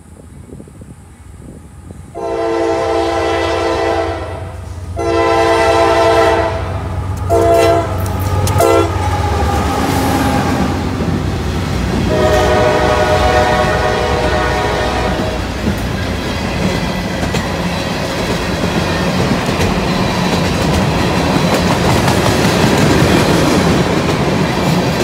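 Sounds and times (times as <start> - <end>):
train rumbling: 0.0 - 25.0
train air horn blasts: 2.1 - 10.8, 12.0 - 15.6.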